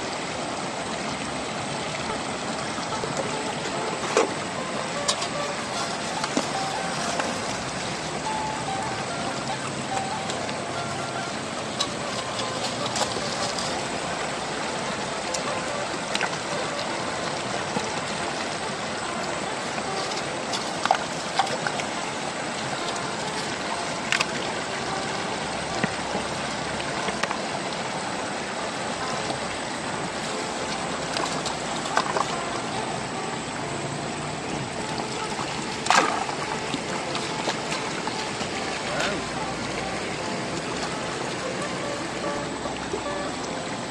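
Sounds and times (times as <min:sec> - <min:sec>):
river water rushing over stones: 0:00.0 - 0:43.9
loud splash: 0:34.9 - 0:39.3.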